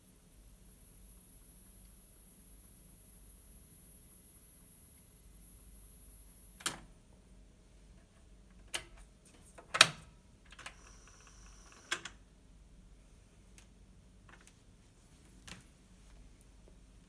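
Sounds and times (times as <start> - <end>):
steady high tone: 0.0 - 6.6.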